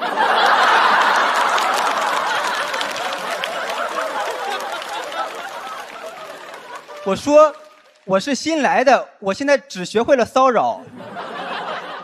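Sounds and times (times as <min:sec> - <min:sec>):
audience laughing: 0:00.0 - 0:07.8, 0:10.8 - 0:12.0
scattered clapping: 0:00.5 - 0:08.4.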